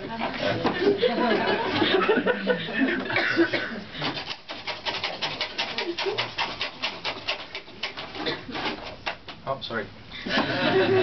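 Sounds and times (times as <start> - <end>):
hollowing tool scraping wood: 4.0 - 9.4.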